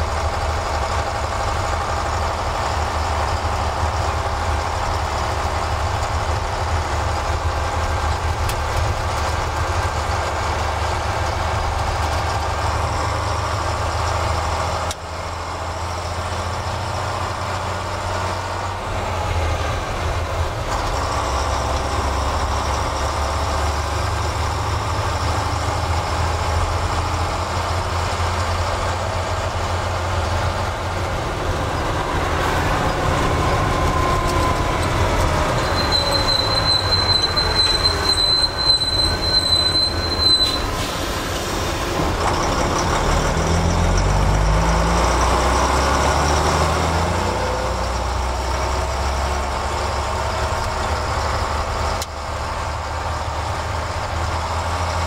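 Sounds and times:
lorry diesel engine running: 0.0s - 55.0s
high-pitched whine: 30.3s - 43.7s.

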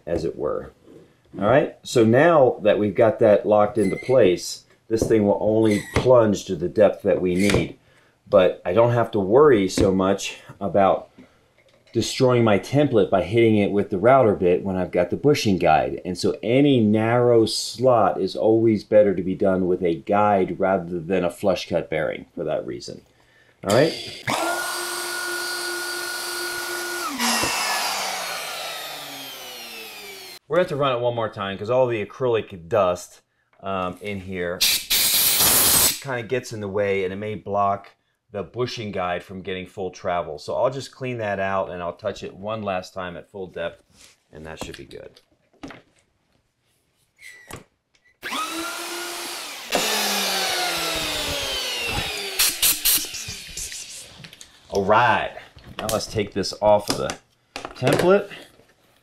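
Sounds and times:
router whining: 23.7s - 30.4s, 48.2s - 54.2s.

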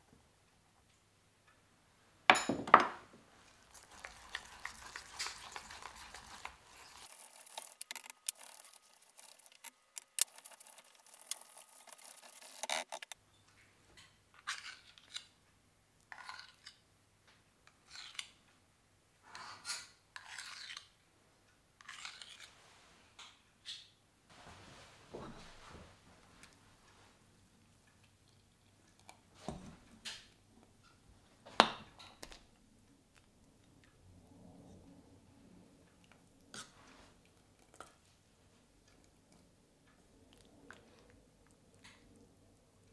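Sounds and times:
whisk scraping dough in pot: 3.5s - 13.2s.

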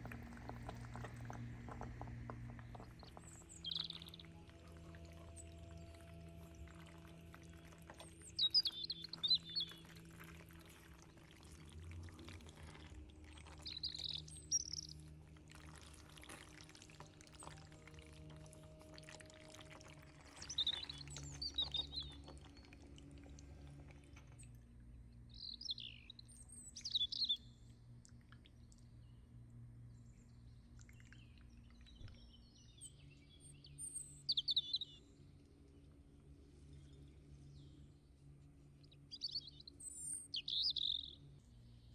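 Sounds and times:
soft background music: 0.0s - 32.0s
bird chirps: 2.6s - 10.4s, 13.4s - 15.1s, 20.2s - 22.7s, 25.3s - 27.6s, 30.9s - 35.0s, 39.1s - 41.3s.

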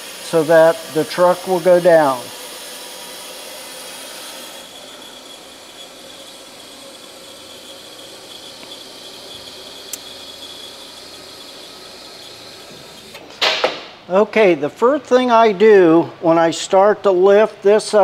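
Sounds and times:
hydraulic fluid hissing: 0.0s - 13.3s.

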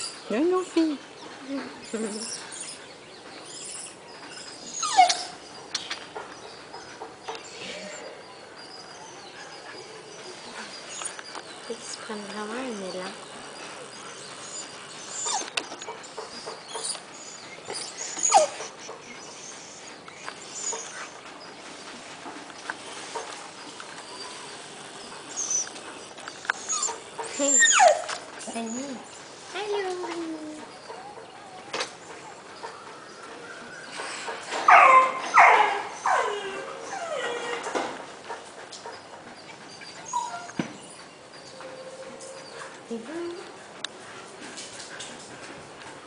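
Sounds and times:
dog whining: 1.5s - 6.8s, 7.4s - 11.9s, 13.0s - 21.2s, 24.0s - 29.1s, 29.7s - 38.0s, 39.4s - 42.8s.

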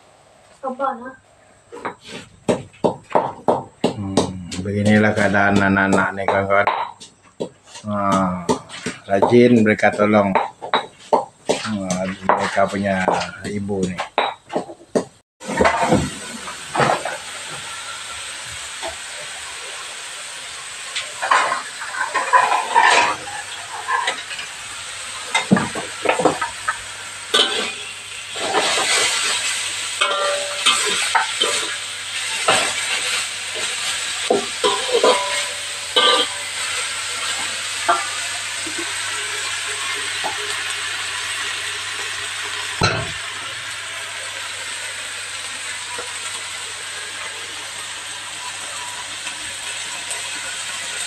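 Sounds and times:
food sizzling: 0.0s - 51.0s
metal spatula scraping a wok: 20.9s - 24.6s, 26.3s - 40.4s.

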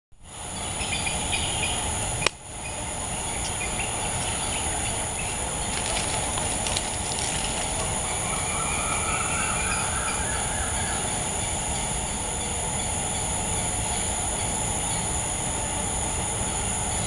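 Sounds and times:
high-pitched insect song: 0.3s - 17.0s
bird chirps: 7.3s - 13.3s.

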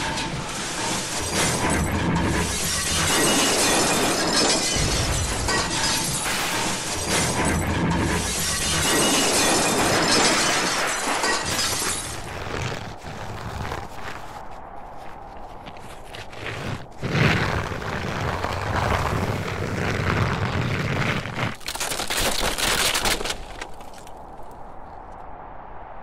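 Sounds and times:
glass shattering: 0.0s - 12.2s
low rumbling impacts: 0.0s - 20.6s
car tumbling and crunching: 0.0s - 24.7s.

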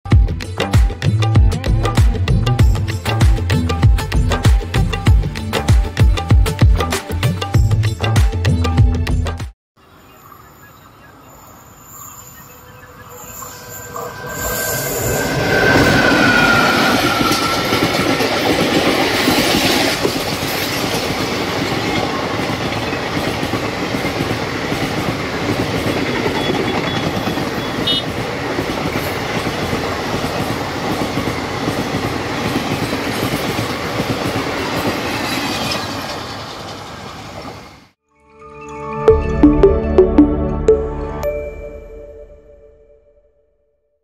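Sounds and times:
electric locomotive whine: 9.9s - 20.5s
train coaches rumbling: 11.4s - 37.9s.

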